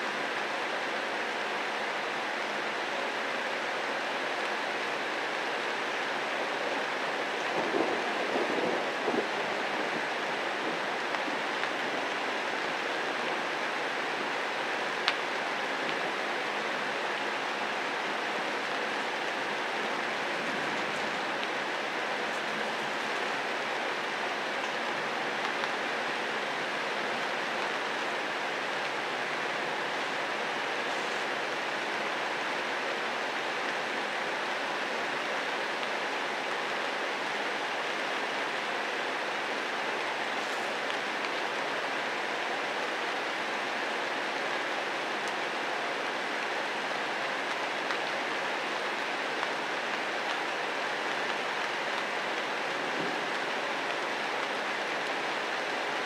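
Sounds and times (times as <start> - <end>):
rain falling on foliage: 0.0 - 56.0.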